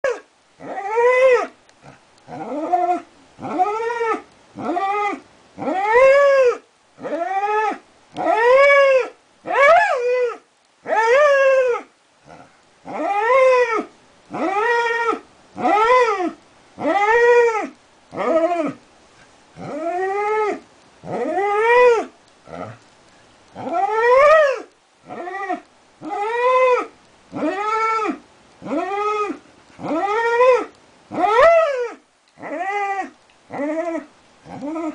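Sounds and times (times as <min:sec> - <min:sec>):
dog howling: 0:00.0 - 0:18.8, 0:19.6 - 0:22.8, 0:23.6 - 0:34.9.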